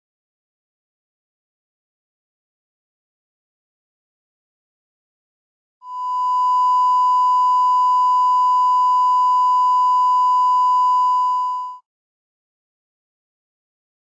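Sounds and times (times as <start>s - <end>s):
steady pure test tone beep: 5.8s - 11.8s.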